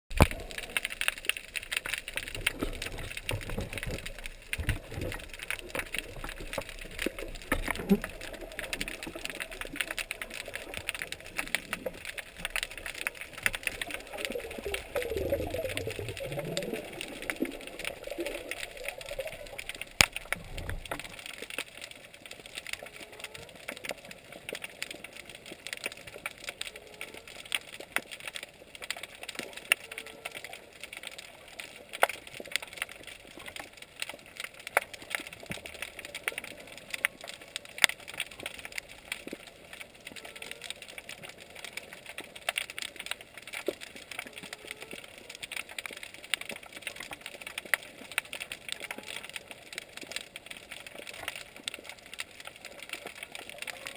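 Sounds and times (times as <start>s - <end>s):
snapping shrimp crackling: 0.1s - 30.7s, 31.8s - 53.9s.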